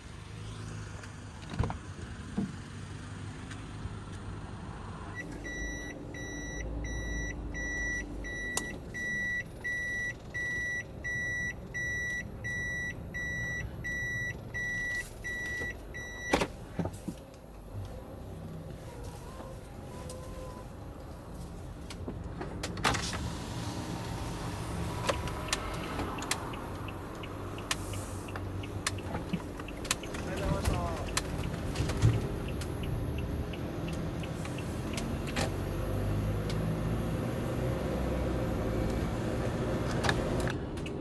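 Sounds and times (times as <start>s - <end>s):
van engine running: 0.0s - 41.0s
dashboard warning chime beeping: 5.2s - 16.4s, 32.2s - 35.1s.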